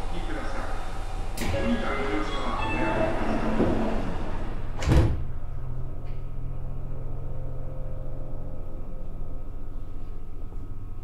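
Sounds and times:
low steady hum: 0.0 - 11.0
platform noise: 0.1 - 9.7
train doors closing thud: 4.8 - 5.3.

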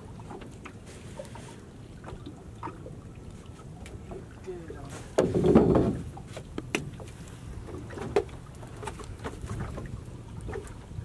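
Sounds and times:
fishing net handled over boat side: 4.8 - 10.8.

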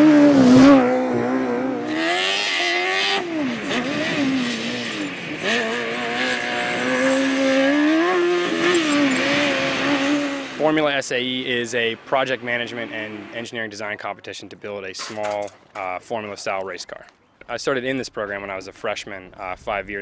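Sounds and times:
race car engine revving: 0.0 - 13.5.

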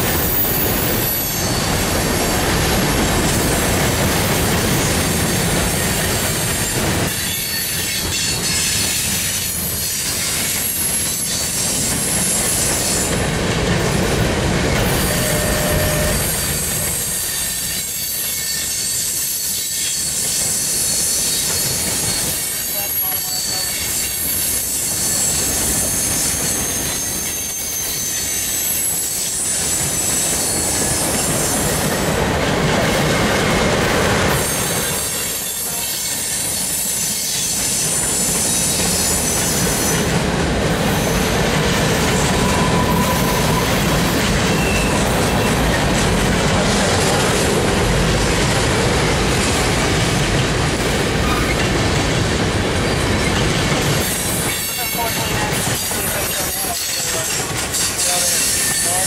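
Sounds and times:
freight train wheels rumbling: 0.0 - 59.0
high-pitched wheel squeal: 14.8 - 30.8, 42.2 - 45.7.

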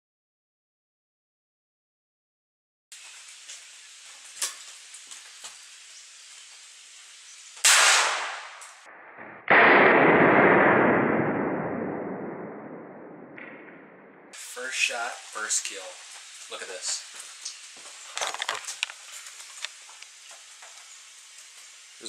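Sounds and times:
faint steady hiss: 2.9 - 8.9, 14.3 - 22.0
handgun shot: 7.6 - 8.7.

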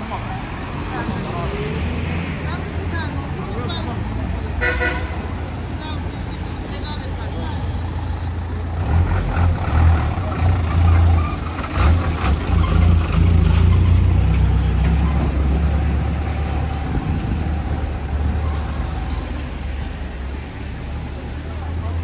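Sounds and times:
heavy vehicle engine rumble: 0.0 - 22.0.

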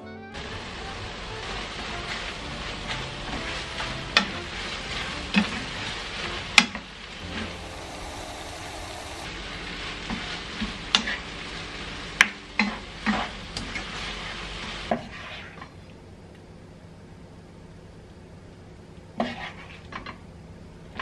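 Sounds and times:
food sizzling in a wok: 0.4 - 15.6.

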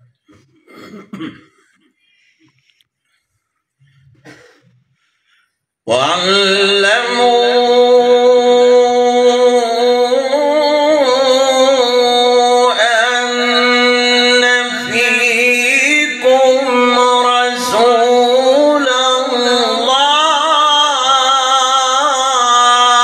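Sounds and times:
man reciting melodically: 5.8 - 23.0.

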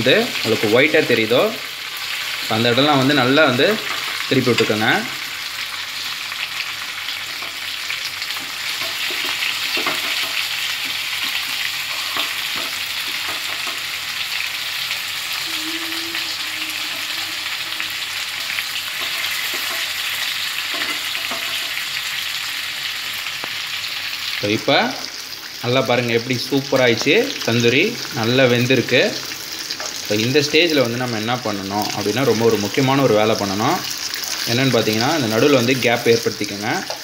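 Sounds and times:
chicken sizzling in hot oil: 0.0 - 37.0
metal tongs scraping pan: 11.2 - 13.9, 18.4 - 21.8.

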